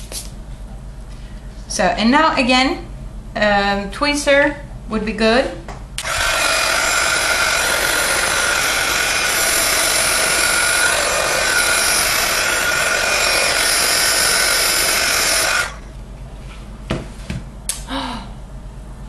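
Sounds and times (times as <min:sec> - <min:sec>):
heat gun blowing air: 0:06.0 - 0:15.8.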